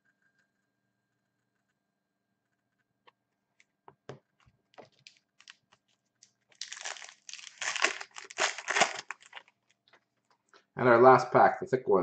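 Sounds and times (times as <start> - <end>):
foil wrapper crinkling: 4.7 - 9.8.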